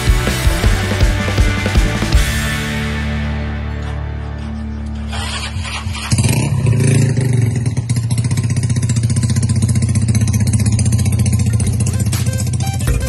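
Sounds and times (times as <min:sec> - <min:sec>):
scooter engine idling: 0:04.5 - 0:13.0.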